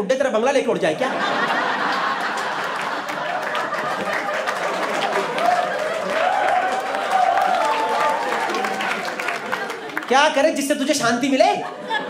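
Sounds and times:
audience laughing: 0:01.0 - 0:10.2, 0:11.2 - 0:12.0
audience clapping: 0:01.6 - 0:10.6.

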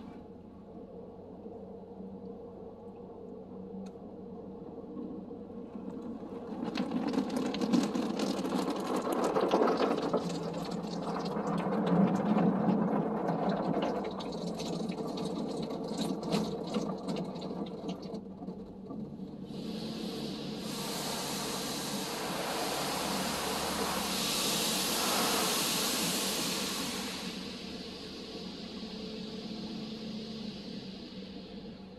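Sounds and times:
steady low hum: 0:00.0 - 0:06.5, 0:18.2 - 0:31.9
water jets spattering on car: 0:06.8 - 0:12.1
steady rushing hiss: 0:19.4 - 0:31.9.

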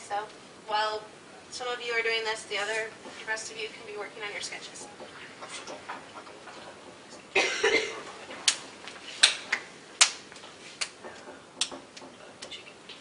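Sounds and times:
person coughing: 0:07.4 - 0:08.0
sharp clicks and knocks: 0:08.3 - 0:13.0.

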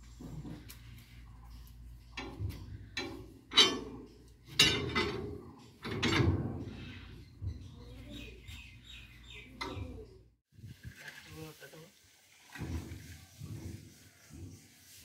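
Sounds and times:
wheel brace metal clanks: 0:00.2 - 0:08.0.

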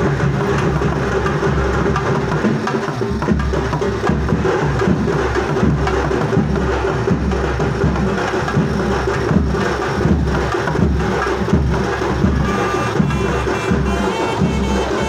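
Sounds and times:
festival music with drumming: 0:00.0 - 0:15.0.

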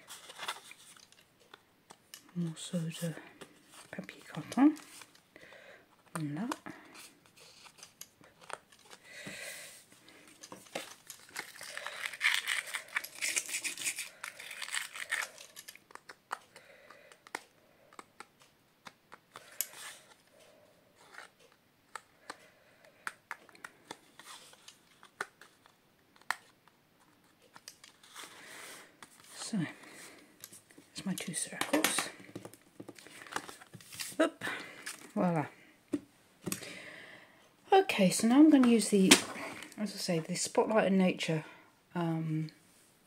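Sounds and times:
cardstock rustling and scraping: 0:00.0 - 0:01.2, 0:06.9 - 0:09.0, 0:10.2 - 0:16.4, 0:27.0 - 0:30.0, 0:31.2 - 0:34.2.

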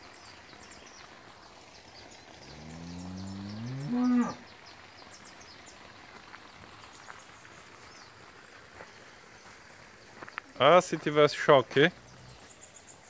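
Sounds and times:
cow mooing: 0:02.5 - 0:04.4.

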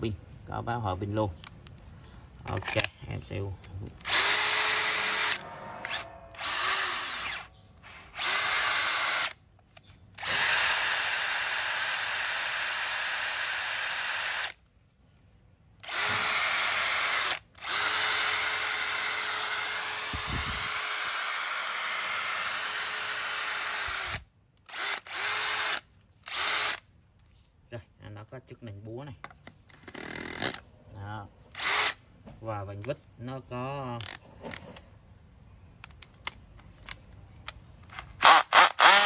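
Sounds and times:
cordless drill motor whine: 0:04.0 - 0:09.4, 0:10.2 - 0:14.6, 0:15.9 - 0:26.8, 0:31.6 - 0:31.9, 0:38.2 - 0:39.0.

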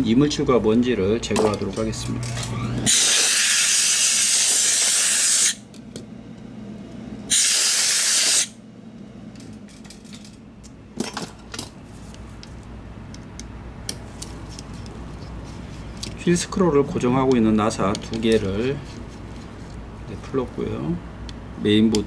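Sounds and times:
air duster hissing: 0:02.6 - 0:05.7, 0:07.3 - 0:08.6.

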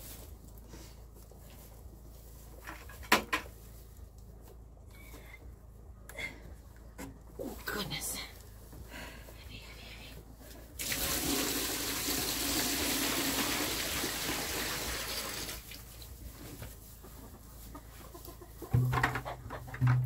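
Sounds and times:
water pouring into plastic tub: 0:10.8 - 0:15.8
hollow knocks: 0:18.7 - 0:20.0.

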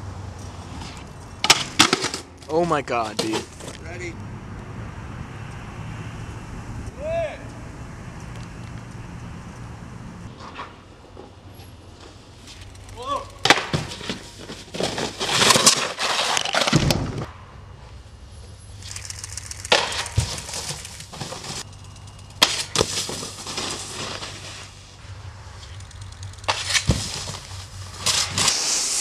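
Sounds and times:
person shouting: 0:07.0 - 0:07.5
board scraping along rail: 0:13.5 - 0:16.7, 0:19.7 - 0:21.7, 0:22.4 - 0:25.8, 0:26.4 - 0:29.0
thuds of landings in snow: 0:26.5 - 0:28.6.

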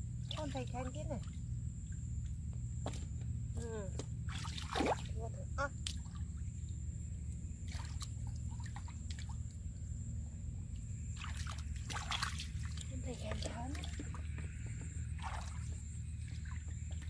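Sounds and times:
steady low hum: 0:00.0 - 0:17.0
small splashes and drips: 0:00.2 - 0:03.2, 0:03.8 - 0:17.0
sloshing in muddy puddle: 0:04.2 - 0:06.8, 0:07.5 - 0:09.8, 0:11.0 - 0:17.0.

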